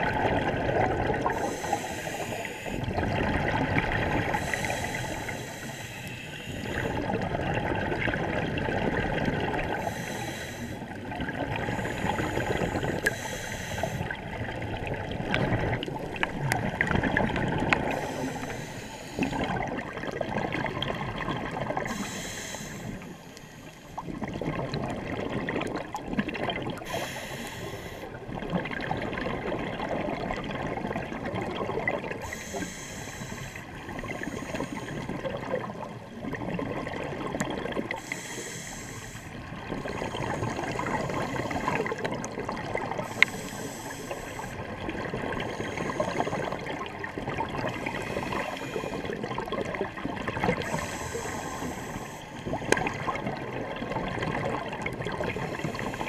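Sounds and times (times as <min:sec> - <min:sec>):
air bubbling underwater: 0:02.8 - 0:04.7.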